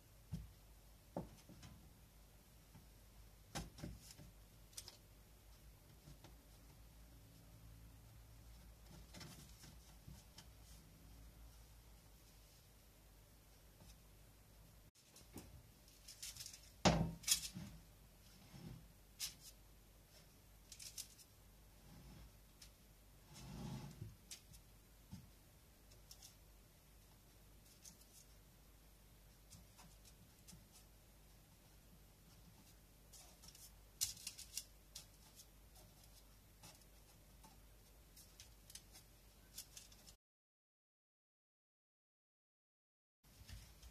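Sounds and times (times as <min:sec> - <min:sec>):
paper rustling: 0:33.1 - 0:37.2, 0:38.2 - 0:40.2.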